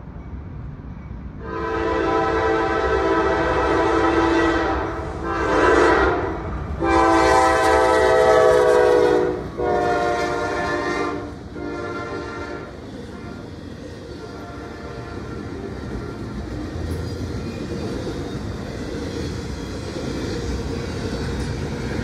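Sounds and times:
train rumbling: 0.0s - 22.0s
locomotive air horn blasts: 1.4s - 13.4s, 14.3s - 16.2s.

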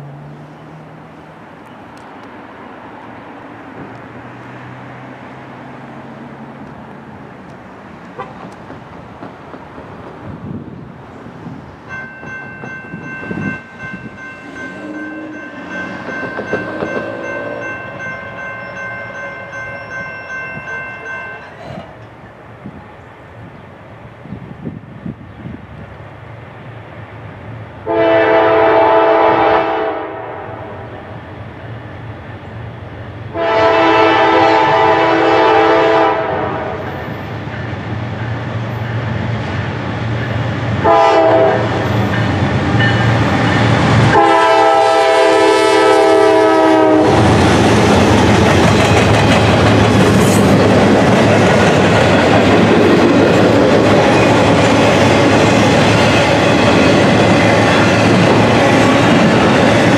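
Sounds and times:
train wheels rumbling on rails: 0.0s - 59.9s
locomotive air horn: 8.2s - 8.4s, 27.8s - 31.1s, 33.3s - 37.0s, 40.8s - 42.0s, 44.1s - 47.3s.

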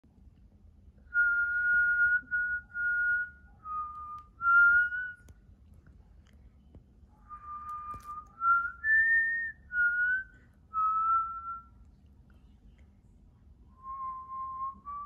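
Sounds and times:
person whistling slow notes: 1.1s - 5.3s, 7.3s - 11.7s, 13.8s - 15.0s.

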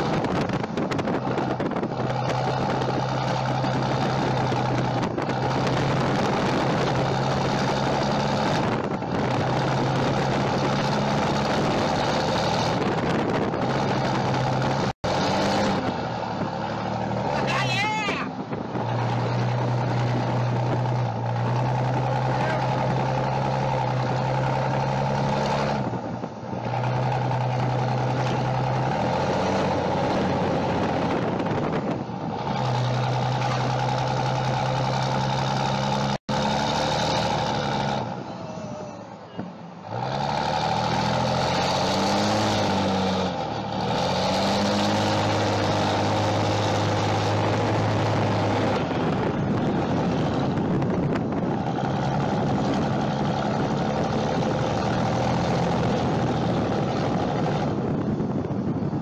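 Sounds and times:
diesel truck engine revving: 0.0s - 59.0s.

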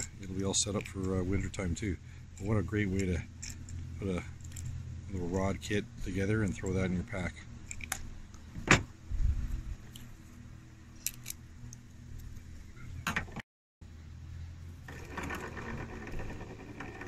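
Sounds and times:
fishing line handling clicks: 11.0s - 11.8s.

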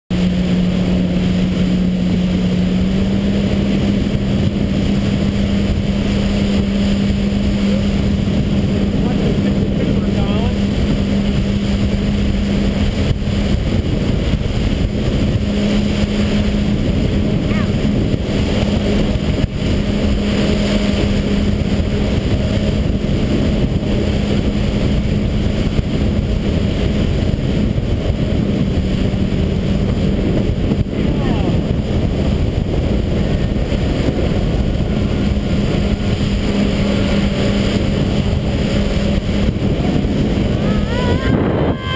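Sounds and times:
hull rumbling across water: 0.1s - 41.9s
watercraft engine humming: 0.1s - 41.9s.

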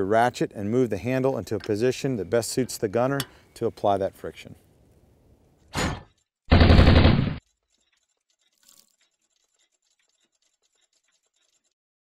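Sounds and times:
deep hit: 5.8s - 7.4s.

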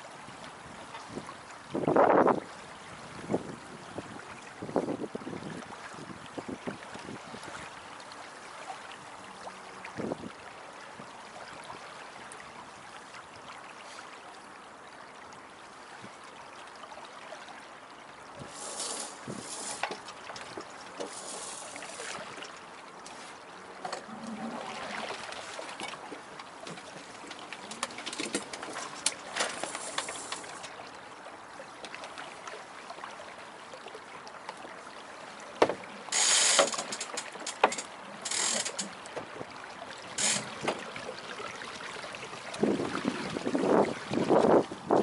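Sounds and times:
deck hardware creaks: 18.5s - 22.0s, 25.8s - 30.8s, 35.6s - 39.5s, 40.1s - 40.9s.

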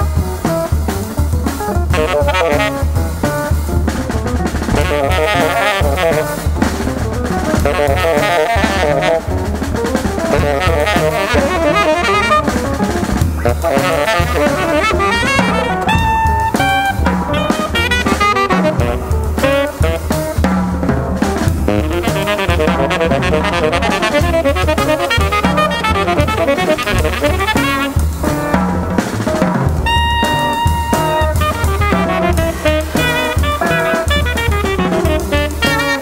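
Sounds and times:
double bass: 0.0s - 36.0s
drum kit with cymbals: 0.0s - 36.0s
tenor saxophone playing: 1.9s - 3.3s, 4.7s - 6.6s, 7.4s - 9.5s, 10.2s - 20.4s, 21.7s - 28.2s, 29.8s - 36.0s.

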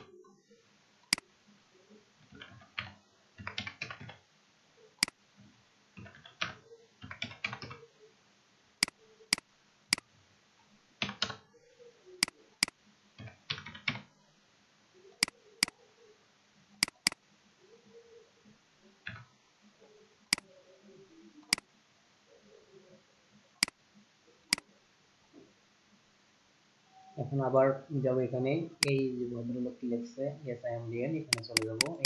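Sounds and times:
computer keyboard typing: 2.3s - 4.2s, 6.0s - 7.8s, 11.0s - 11.4s, 12.6s - 14.0s, 16.8s - 17.2s, 31.3s - 32.0s
mouse clicks: 16.8s - 17.2s, 21.4s - 21.7s, 28.8s - 29.0s, 31.3s - 32.0s.

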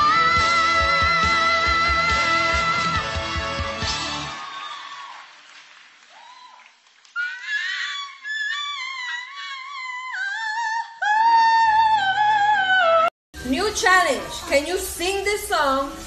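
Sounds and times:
song music: 0.0s - 4.4s.

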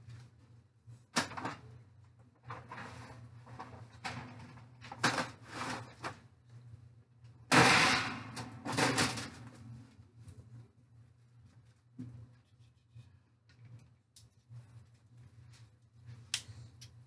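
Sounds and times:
foil pans clattering: 7.5s - 9.5s.

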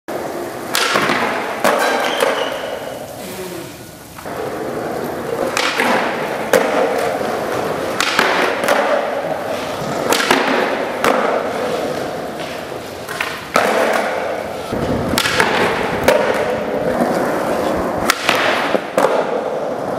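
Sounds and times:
skateboard wheels rolling on concrete: 0.1s - 19.9s
skateboard pops and landing clacks: 0.6s - 3.0s, 5.4s - 19.9s
skateboard grinding on concrete ledge: 4.2s - 19.9s.

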